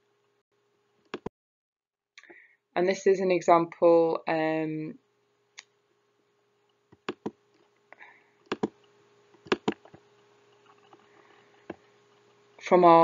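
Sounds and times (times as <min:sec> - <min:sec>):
computer mouse clicks: 0:06.9 - 0:07.4, 0:08.4 - 0:12.4.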